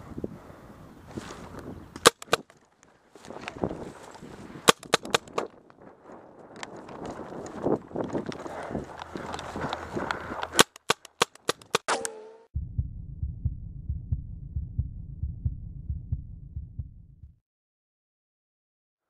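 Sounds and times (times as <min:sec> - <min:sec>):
rustling through grass: 0:01.1 - 0:01.7, 0:02.9 - 0:04.6
paintball shots: 0:02.0 - 0:02.5, 0:04.7 - 0:05.5, 0:10.5 - 0:12.5
heartbeat sound effect: 0:12.6 - 0:17.4.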